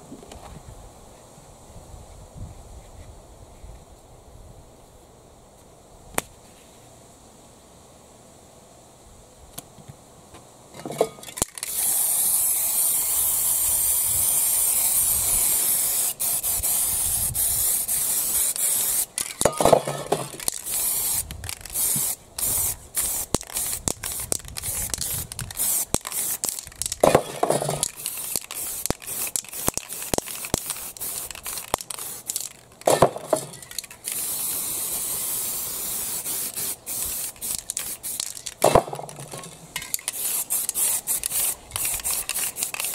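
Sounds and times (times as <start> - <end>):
spray paint can hissing: 11.2 - 42.9.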